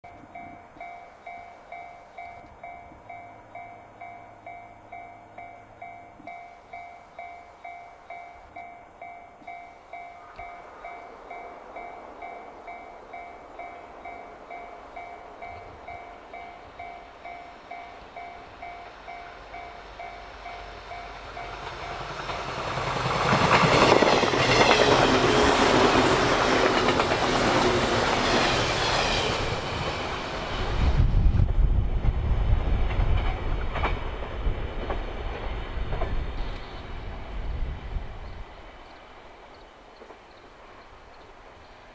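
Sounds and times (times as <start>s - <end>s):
train passing: 0.1s - 41.9s
train wheels clacking over rail joints: 17.7s - 30.5s, 31.5s - 36.7s.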